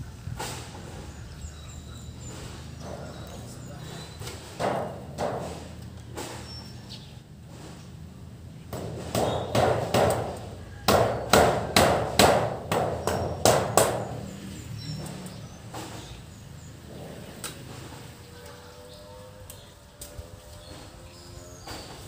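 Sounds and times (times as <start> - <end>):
hammer nailing metal sheet: 8.8 - 14.2.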